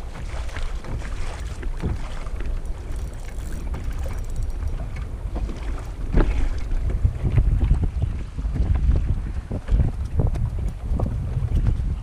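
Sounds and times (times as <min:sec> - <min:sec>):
water lapping against kayak hull: 0:00.0 - 0:12.0
wind rumbling on microphone: 0:00.0 - 0:12.0.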